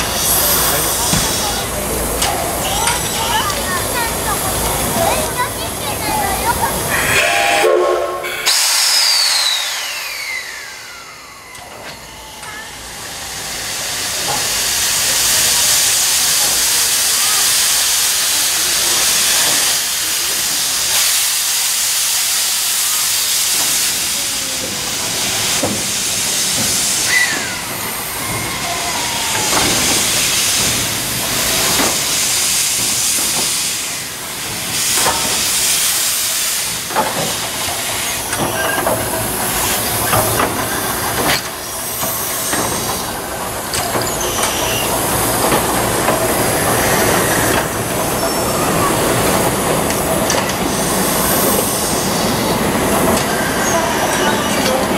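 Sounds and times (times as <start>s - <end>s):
steam hissing: 0.0s - 54.9s
steam locomotive whistle: 6.9s - 10.9s.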